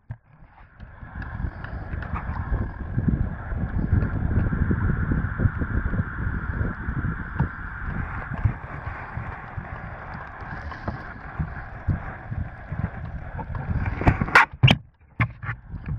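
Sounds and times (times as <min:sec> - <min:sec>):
wind buffeting microphone: 0:00.6 - 0:15.9
waves lapping against kayak: 0:07.4 - 0:14.5.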